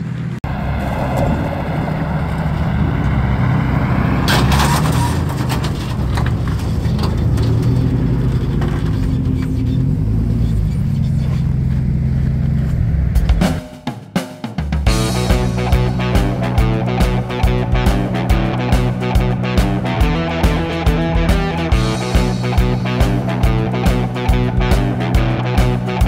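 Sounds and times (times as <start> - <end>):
car engine at low revs: 5.7 - 13.5.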